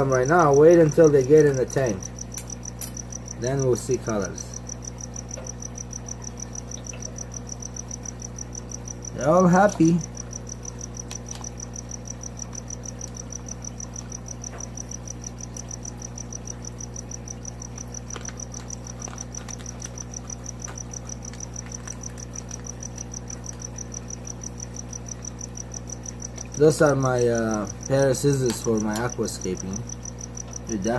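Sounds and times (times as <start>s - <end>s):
steady low hum: 0.0s - 30.9s
plastic bags crinkling: 17.8s - 23.7s.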